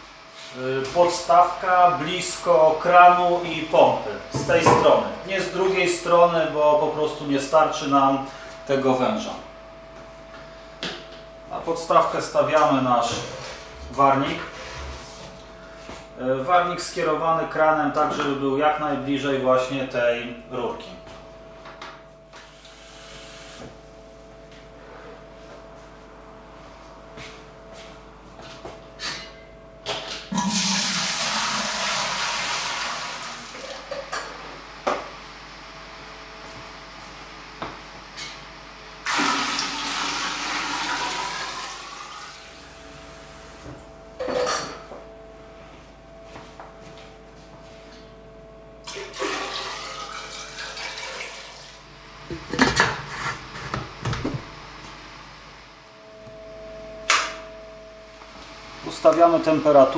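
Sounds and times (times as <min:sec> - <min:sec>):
faint steady hum: 0:00.0 - 0:59.9
water pouring into metal tank: 0:30.4 - 0:33.6, 0:39.1 - 0:42.4, 0:48.9 - 0:51.8.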